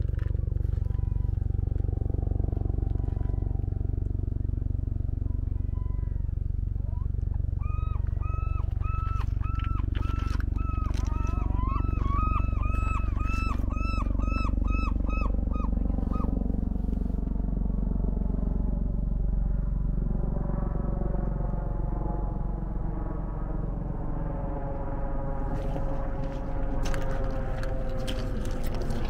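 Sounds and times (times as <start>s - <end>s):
helicopter rumble overhead: 0.0s - 29.0s
gull calling: 5.5s - 16.4s.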